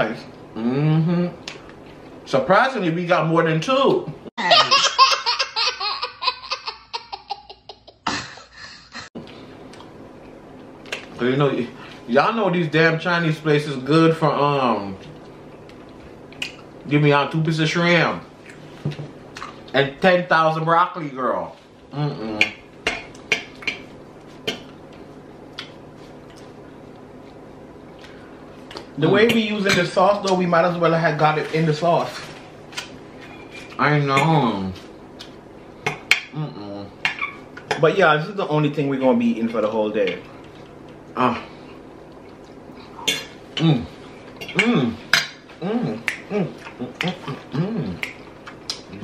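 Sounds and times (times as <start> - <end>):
faint steady hum: 0.0 - 49.0
girl laughing: 4.4 - 9.1.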